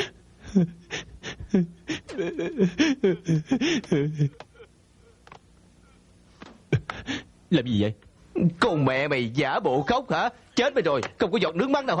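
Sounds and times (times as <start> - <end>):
man sobbing: 0.0 - 5.2, 6.7 - 7.4.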